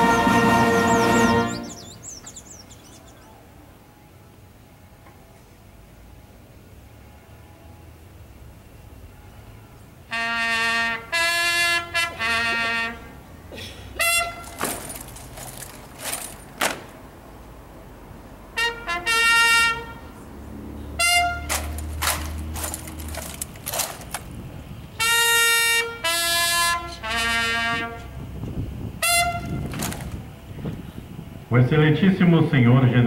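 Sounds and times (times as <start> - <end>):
bugle call: 0.0 - 1.9, 10.1 - 13.2, 14.0 - 16.4, 18.5 - 20.2, 21.0 - 24.1, 24.9 - 28.1, 29.0 - 30.1.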